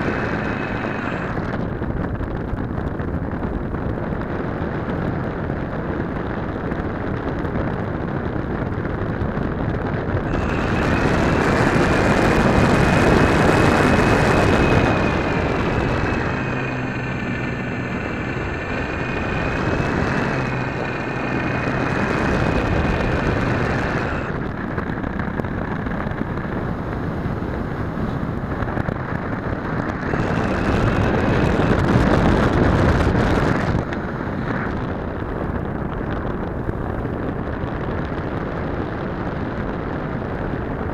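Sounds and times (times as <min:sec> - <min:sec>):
wavering high whine: 0:00.0 - 0:02.5, 0:10.1 - 0:36.6
model airplane motor and propeller: 0:00.0 - 0:40.9
wind rushing on microphone: 0:00.0 - 0:40.9.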